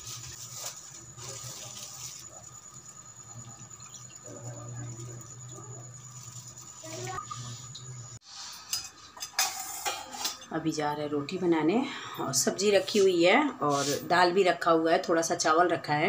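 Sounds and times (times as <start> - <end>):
liquid pouring into metal cup: 1.4 - 8.0.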